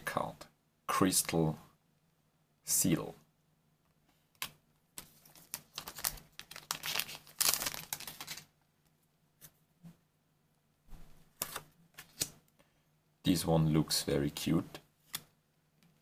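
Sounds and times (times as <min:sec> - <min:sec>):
cards rustling: 0:04.4 - 0:08.5, 0:11.4 - 0:12.4.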